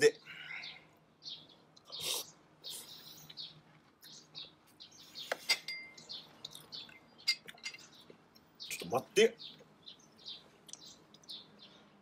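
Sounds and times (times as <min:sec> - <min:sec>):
birds chirping: 0:00.0 - 0:12.0
tableware clinking: 0:05.4 - 0:06.1, 0:07.3 - 0:07.9.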